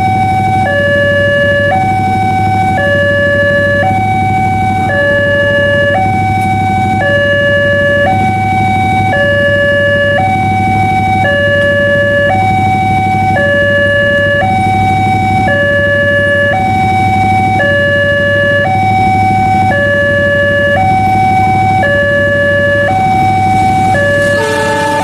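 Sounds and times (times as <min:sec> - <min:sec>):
two-tone level crossing alarm: 0:00.0 - 0:25.0
train horn: 0:23.5 - 0:25.0.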